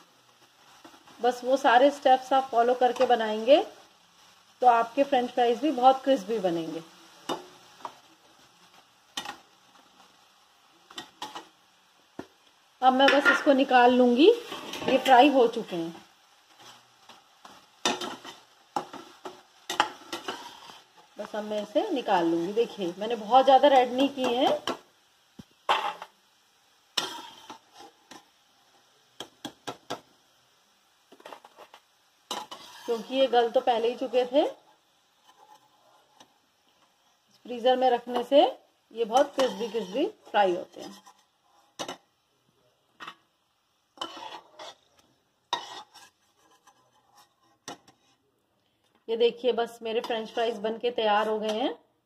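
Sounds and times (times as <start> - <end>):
metal spoon scraping a pan: 1.9 - 3.2, 10.9 - 11.6, 12.9 - 15.7, 16.5 - 24.8, 25.6 - 26.2, 26.9 - 28.3, 31.1 - 38.4, 39.0 - 42.1, 43.9 - 48.2, 49.9 - 51.6.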